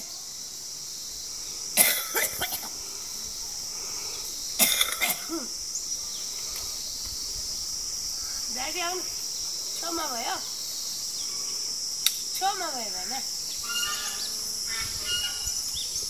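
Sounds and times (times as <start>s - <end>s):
insects droning: 0.0s - 16.0s
person coughing: 1.8s - 2.7s, 4.6s - 5.5s.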